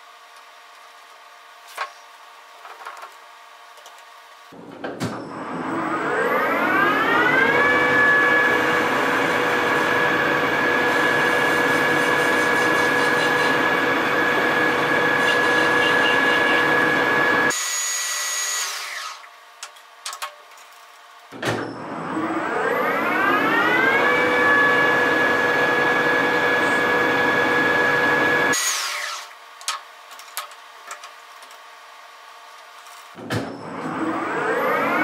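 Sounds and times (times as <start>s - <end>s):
lathe spindle whine: 5.3s - 17.5s, 21.8s - 29.2s.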